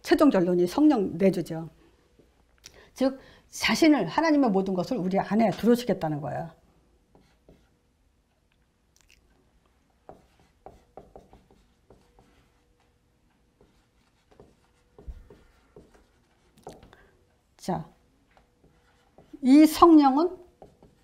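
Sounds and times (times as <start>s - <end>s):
marker writing on whiteboard: 7.1s - 7.8s, 10.0s - 21.0s.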